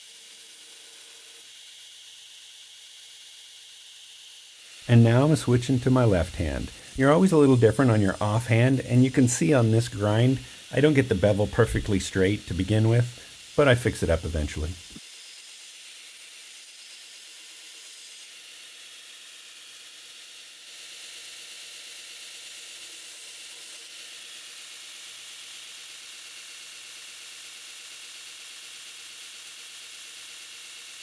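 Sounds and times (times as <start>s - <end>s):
belt grinder grinding steel: 0.0s - 31.0s.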